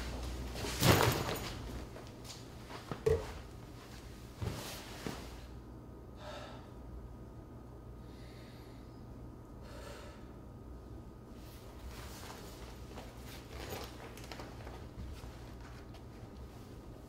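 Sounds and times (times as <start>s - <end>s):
clothes rustling: 0.0s - 5.5s, 11.4s - 17.0s
low steady hum: 0.0s - 17.0s.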